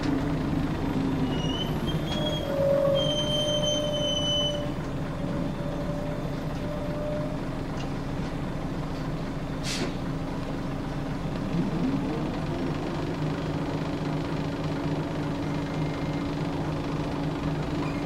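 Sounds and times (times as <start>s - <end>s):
diesel bus engine at low revs: 0.0s - 18.0s
high squeal: 1.2s - 7.5s
compressed air hiss: 9.6s - 10.0s.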